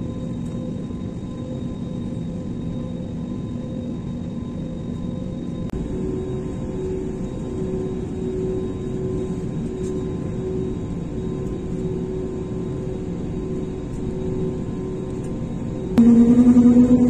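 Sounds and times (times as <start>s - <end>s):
jet engines rumbling: 5.7s - 17.0s
steady cabin hum: 16.0s - 17.0s.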